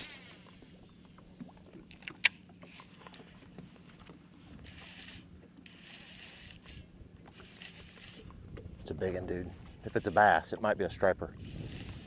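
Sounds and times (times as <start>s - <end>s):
fishing reel clicks: 4.7s - 8.2s, 9.9s - 10.4s, 11.4s - 12.0s.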